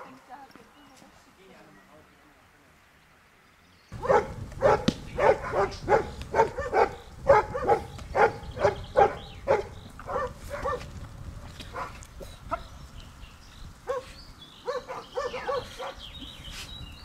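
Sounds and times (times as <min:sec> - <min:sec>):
dog barking rapidly: 0:04.0 - 0:10.9, 0:11.7 - 0:12.0, 0:13.9 - 0:16.1.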